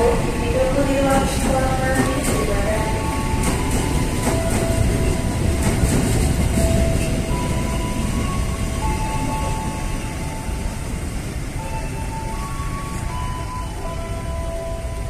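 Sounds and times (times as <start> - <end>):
wheels clicking over rail joints: 0.0 - 9.7.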